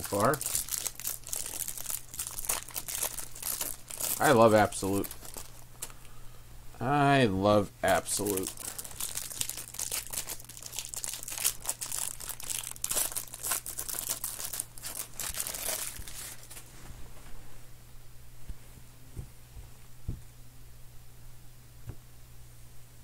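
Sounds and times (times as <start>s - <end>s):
foil wrapper crinkling and tearing: 0.0s - 5.9s, 7.9s - 16.7s.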